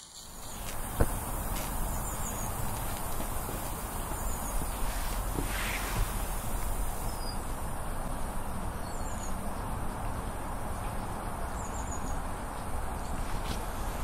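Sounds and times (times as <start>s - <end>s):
steam engine hissing: 0.0s - 7.4s.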